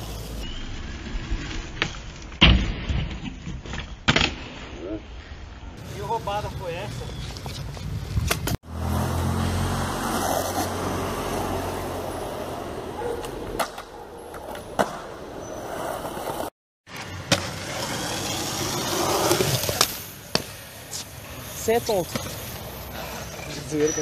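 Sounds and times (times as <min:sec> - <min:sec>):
skateboard wheels rolling on concrete: 0:00.0 - 0:02.4, 0:05.7 - 0:24.0
skateboard clacking: 0:11.5 - 0:16.5.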